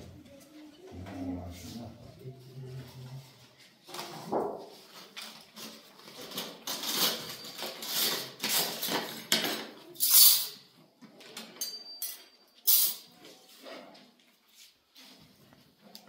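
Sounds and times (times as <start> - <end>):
hard objects clattering: 4.0 - 10.6.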